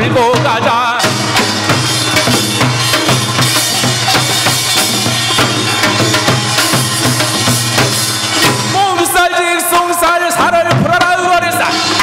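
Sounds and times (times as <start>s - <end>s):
man singing: 0.0s - 1.4s, 8.4s - 12.0s
drums and gongs ensemble: 0.0s - 12.0s.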